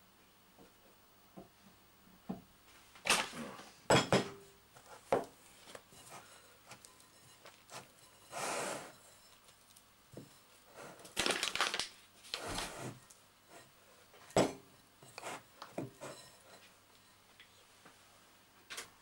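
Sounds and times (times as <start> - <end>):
hands kneading dough: 4.7 - 16.7.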